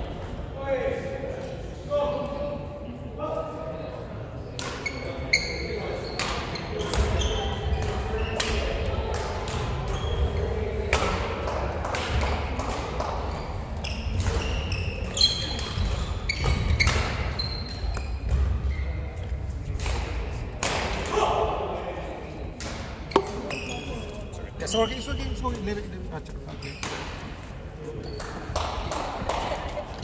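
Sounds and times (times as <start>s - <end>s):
shoes squeaking on wooden floor: 13.8s - 19.3s, 23.1s - 28.5s
rackets striking shuttlecock: 19.6s - 21.2s, 22.6s - 23.6s.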